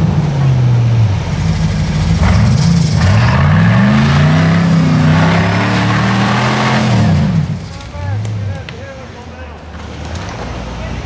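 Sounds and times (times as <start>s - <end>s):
buggy engine revving hard: 0.0s - 8.4s.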